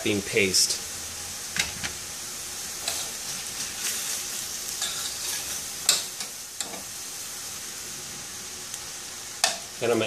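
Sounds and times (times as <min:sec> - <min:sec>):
vegetables sizzling in a skillet: 0:00.0 - 0:10.0
spoon scraping a pan: 0:02.8 - 0:06.9.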